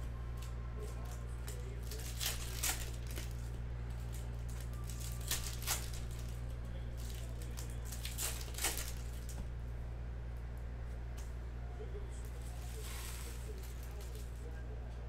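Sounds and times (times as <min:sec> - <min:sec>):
low electrical hum: 0:00.0 - 0:15.0
foil wrappers tearing and crinkling: 0:01.0 - 0:09.4.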